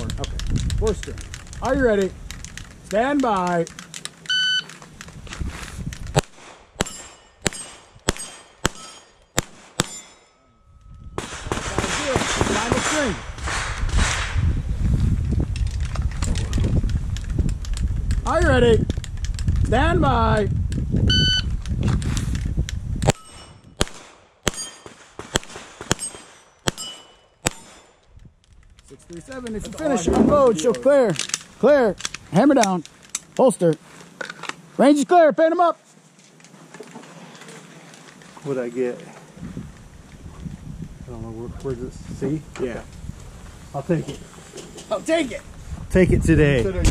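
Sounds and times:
shot timer beep: 4.3 - 4.6, 21.1 - 21.5
pistol shots: 6.1 - 10.2, 11.2 - 14.4, 23.0 - 28.0
steel target plates ringing: 6.8 - 11.2, 23.1 - 23.8, 24.5 - 25.0, 25.9 - 27.8.

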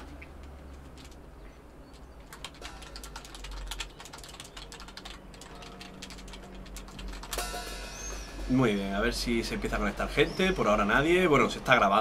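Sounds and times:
fast typing on keyboard: 1.9 - 7.4.

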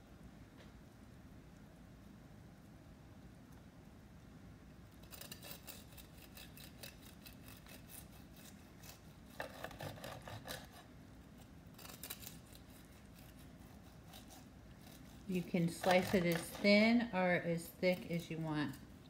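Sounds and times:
knife sawing through crusted meat: 5.0 - 16.6.

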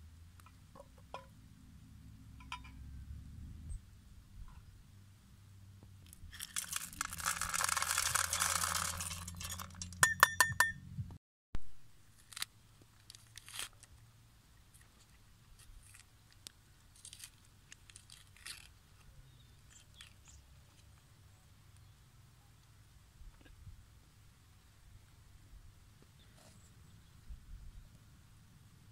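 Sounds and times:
metal bowls clinking pot: 2.4 - 2.8, 8.2 - 10.8
beans poured into metal pot: 6.4 - 9.9.

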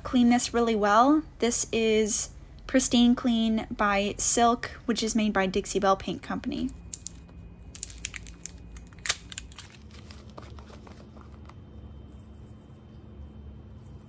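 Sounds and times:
glove crinkling against plastic jar: 6.7 - 11.6.

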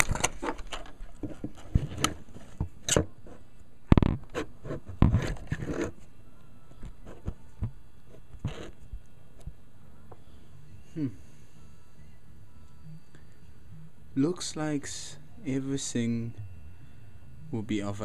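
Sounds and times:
camera handling scrapes and knocks: 0.0 - 3.1, 4.2 - 6.0.

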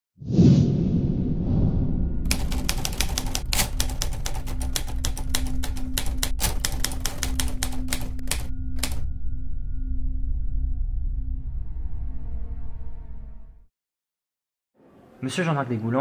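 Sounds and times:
typewriter keys clattering: 2.3 - 9.0.

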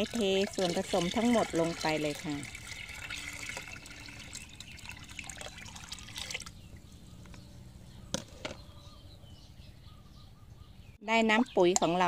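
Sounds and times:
liquid pouring into water: 0.0 - 6.7.

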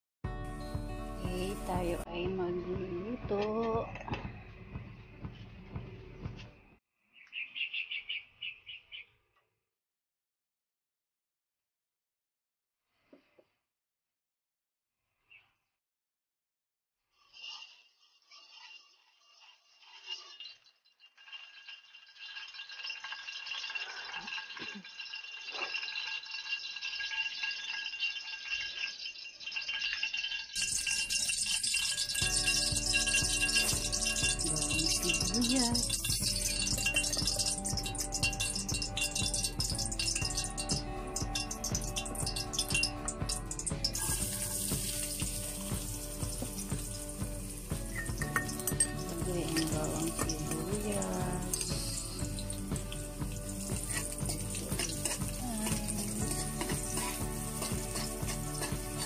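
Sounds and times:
background music: 0.2 - 6.8, 32.0 - 59.0
oil crackling and sizzling in a wok: 17.1 - 59.0.

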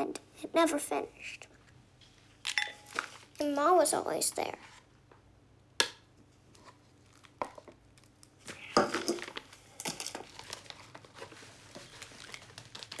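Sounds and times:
food packet crinkling: 7.0 - 13.0.

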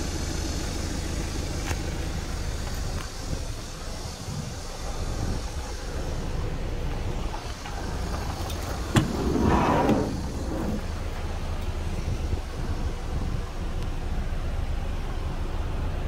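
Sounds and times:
low rumble: 3.2 - 15.0
door moving rush: 7.4 - 11.2.

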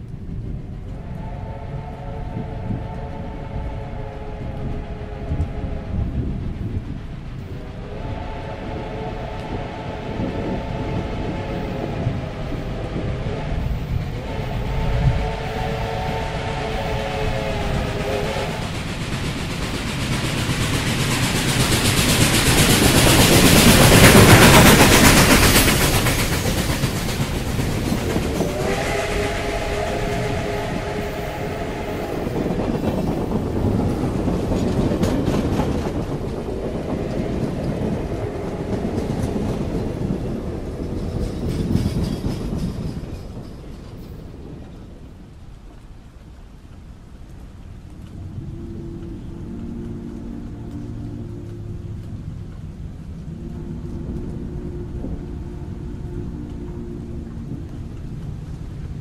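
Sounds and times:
steam whistle chord: 1.0 - 6.2, 7.7 - 18.7, 28.3 - 32.6, 48.3 - 52.1, 53.2 - 57.6
train wheels clattering on rails: 4.4 - 59.0.

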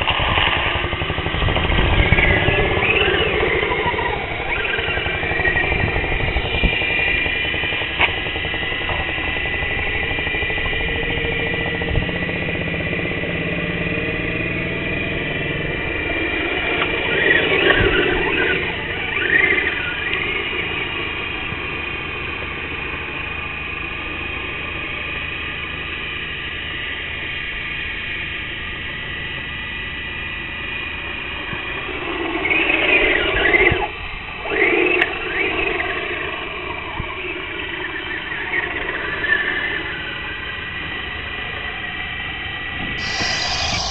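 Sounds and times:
toy car motor whining: 43.0 - 43.9.

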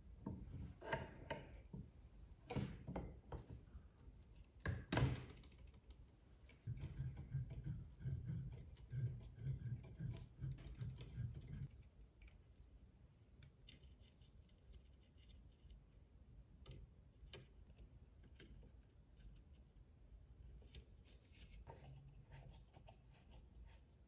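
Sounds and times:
dull knocks and rubbing: 6.5 - 11.7.

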